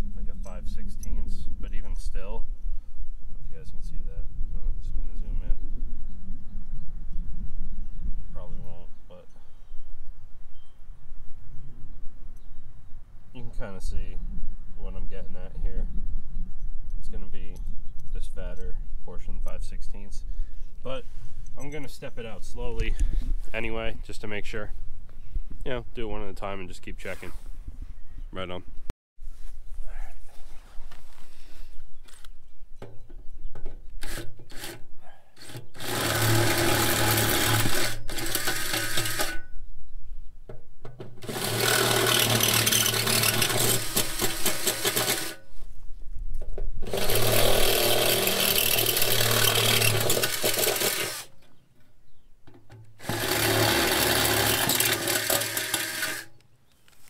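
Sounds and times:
cordless drill drilling metal: 34.0 - 34.8, 35.4 - 39.4, 41.2 - 45.4, 46.8 - 51.4, 53.0 - 56.4.

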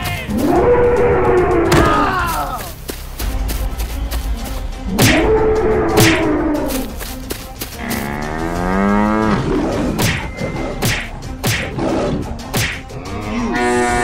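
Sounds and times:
cow mooing: 7.8 - 9.7, 13.0 - 14.0
sharp hits and whip cracks: 10.8 - 11.8, 12.5 - 12.9.

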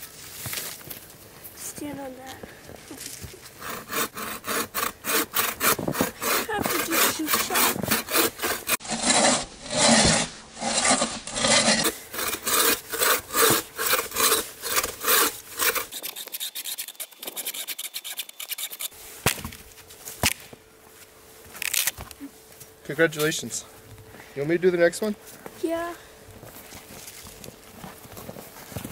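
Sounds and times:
bow saw cutting log: 3.6 - 19.4.

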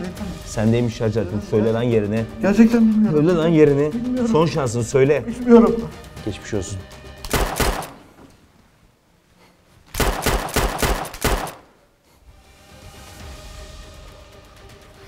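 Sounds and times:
pistol gunfire: 7.2 - 8.0, 10.0 - 11.8.

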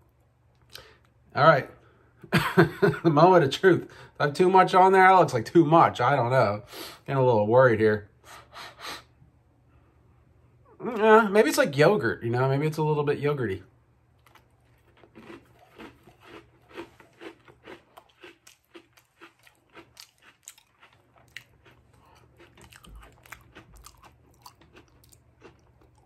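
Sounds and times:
person chewing crunchy cookie: 14.1 - 26.0.

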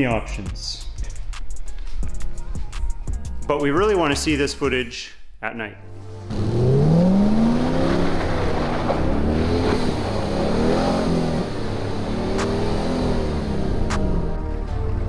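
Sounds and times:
car engine revving: 6.2 - 14.6.

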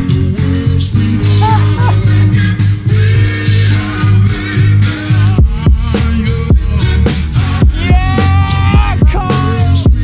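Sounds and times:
music with drum beat: 5.3 - 10.0.

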